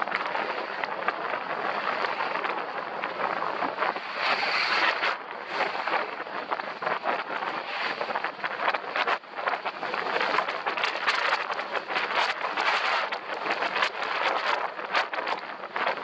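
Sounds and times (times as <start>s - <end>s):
wind rushing over microphone: 0.0s - 16.0s
skis scraping over snow: 3.2s - 7.0s.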